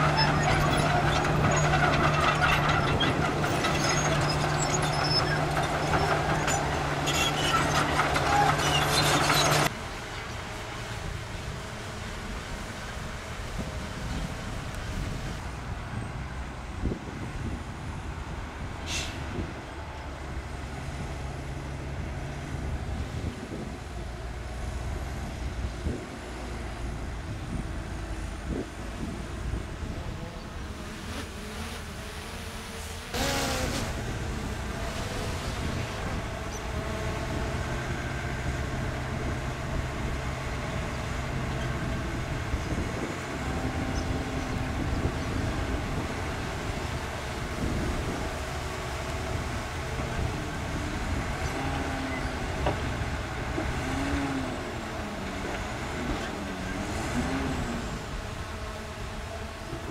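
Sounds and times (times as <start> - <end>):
diesel truck engine running: 0.0 - 12.4.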